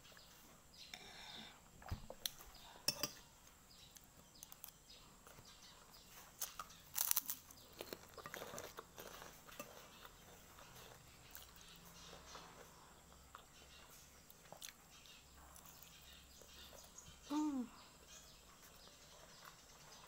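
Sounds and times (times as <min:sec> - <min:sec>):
chewing and crunching food: 0:02.1 - 0:17.2, 0:18.0 - 0:20.0
spoon clicking on plate: 0:02.9 - 0:03.2.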